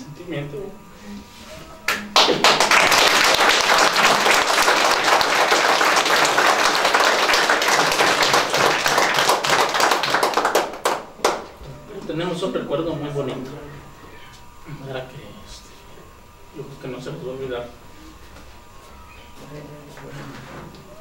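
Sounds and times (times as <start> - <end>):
audience applauding: 1.9 - 11.5.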